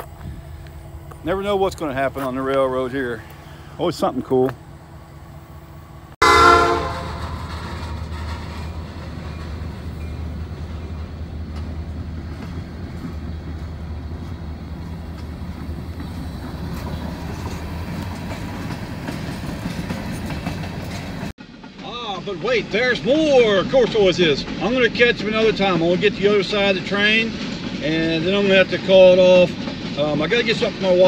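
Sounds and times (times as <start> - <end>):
train cars rumbling past: 0.0 - 31.0
locomotive horn: 6.2 - 7.6
train wheel clicks: 7.2 - 21.8.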